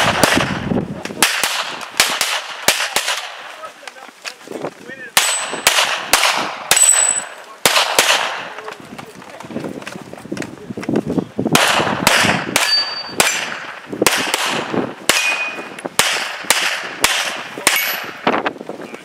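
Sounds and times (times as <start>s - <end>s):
handgun shots: 1.2s - 3.4s, 5.2s - 8.5s, 11.6s - 18.2s
steel target ringing: 12.6s - 13.4s.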